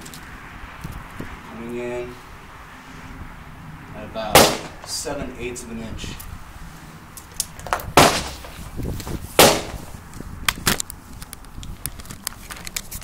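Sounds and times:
loud sharp cracks: 0:04.3 - 0:05.0, 0:08.0 - 0:08.7, 0:09.4 - 0:10.0.

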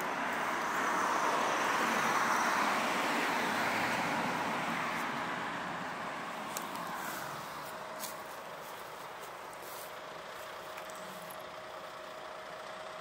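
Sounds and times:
vehicle driving past: 0:00.0 - 0:08.4.

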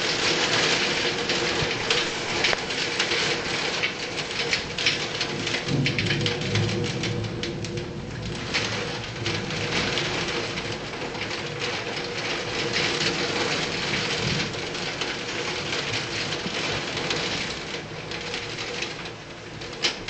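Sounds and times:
heavy rain on street: 0:00.0 - 0:20.0.

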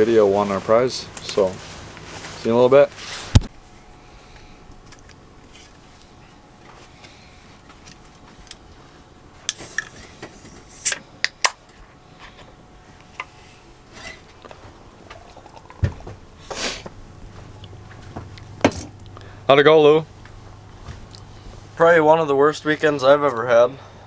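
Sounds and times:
person sipping from can: 0:15.0 - 0:16.9.

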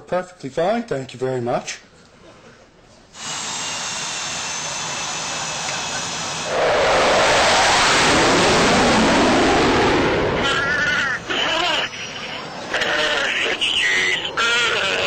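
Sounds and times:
jet engine whine: 0:03.2 - 0:15.0
loud jet rushing noise: 0:05.2 - 0:14.4.

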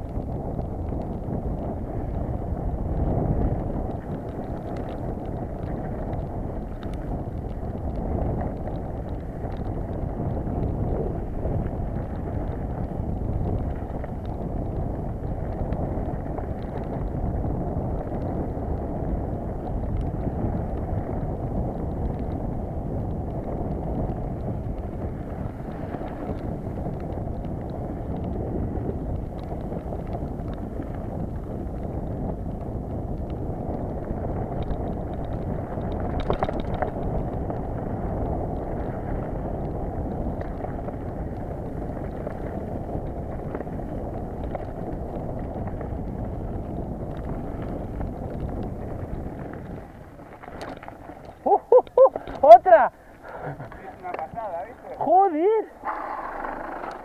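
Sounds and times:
bike rattles and clicks: 0:00.0 - 0:57.0
wind on microphone: 0:00.0 - 0:57.0
tyres rumbling over dirt: 0:35.4 - 0:57.0.

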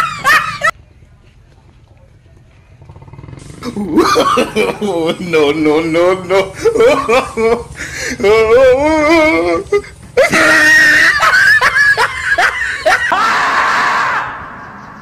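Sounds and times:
warbling high-pitched squealing cry: 0:08.2 - 0:15.0
long loud scream: 0:10.2 - 0:11.7, 0:12.9 - 0:14.7.

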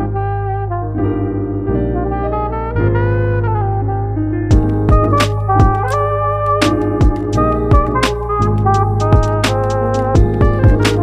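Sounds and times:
instrumental music with drums: 0:04.5 - 0:11.0.

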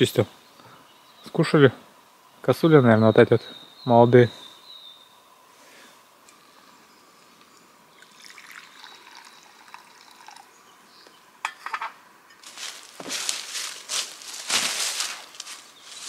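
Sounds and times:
hot drink pouring into cup: 0:07.4 - 0:10.7
dry leaves crackling underfoot: 0:12.4 - 0:16.0.

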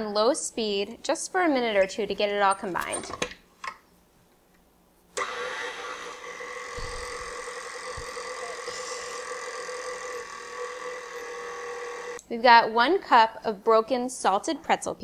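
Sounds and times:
stand mixer motor whine: 0:05.2 - 0:12.2
low thumps: 0:06.8 - 0:08.2.

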